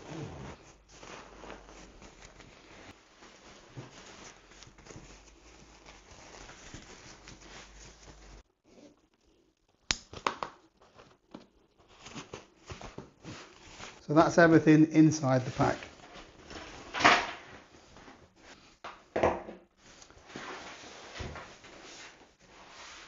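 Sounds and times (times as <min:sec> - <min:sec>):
nylon bag fabric rustling: 0:00.0 - 0:09.4, 0:10.8 - 0:14.1, 0:15.4 - 0:18.8.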